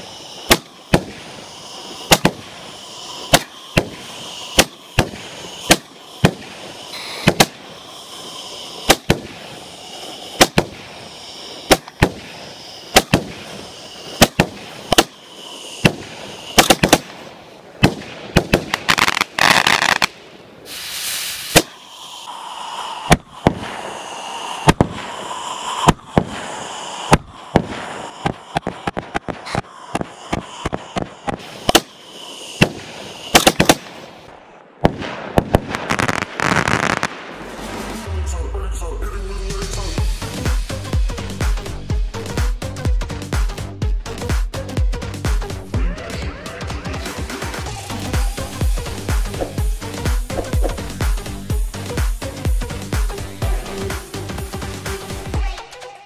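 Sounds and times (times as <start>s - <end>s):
firework bangs: 0.0s - 38.2s
firework crackling hiss: 0.0s - 45.8s, 47.0s - 56.0s.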